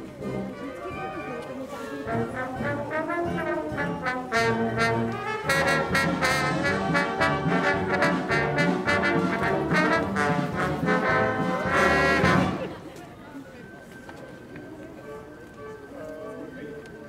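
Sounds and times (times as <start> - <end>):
brass band playing a march: 0.2 - 12.8.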